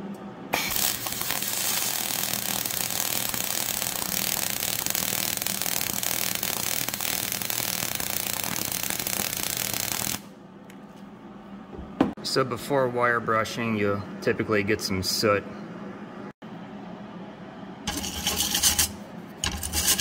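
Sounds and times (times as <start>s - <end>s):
welding arc crackling hiss: 0.5s - 10.3s.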